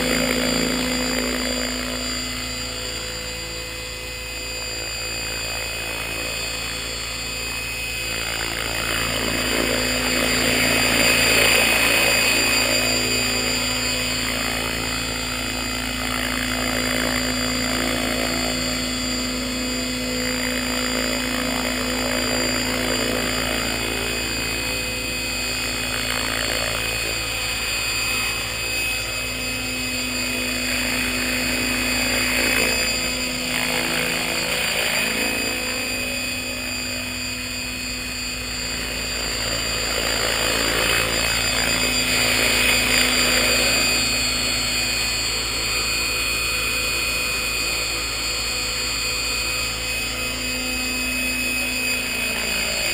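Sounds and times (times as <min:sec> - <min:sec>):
model helicopter rotor whine: 0:00.0 - 0:52.9.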